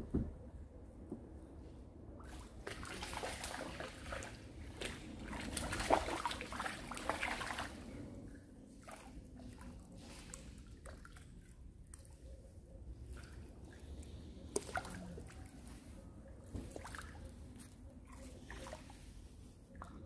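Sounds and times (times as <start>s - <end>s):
fish splashing in water: 2.2s - 8.0s, 13.1s - 15.6s.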